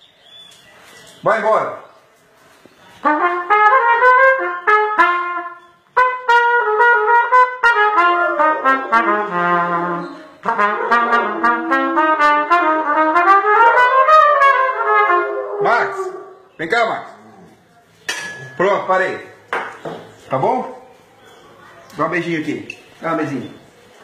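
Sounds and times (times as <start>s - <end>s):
trumpet playing a melody: 3.0s - 16.3s.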